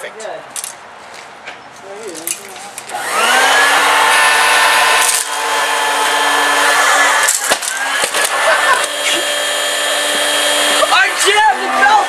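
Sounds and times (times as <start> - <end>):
vacuum cleaner motor running: 2.9 - 12.0.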